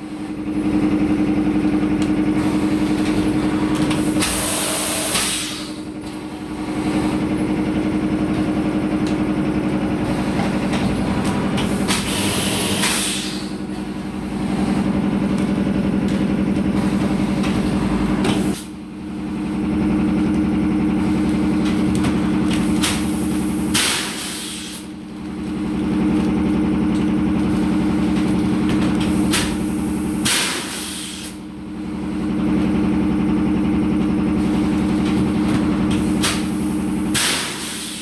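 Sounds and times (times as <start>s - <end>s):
machinery humming: 0.0s - 38.0s
air release hisses: 11.9s - 13.5s, 23.7s - 24.8s, 30.2s - 31.4s.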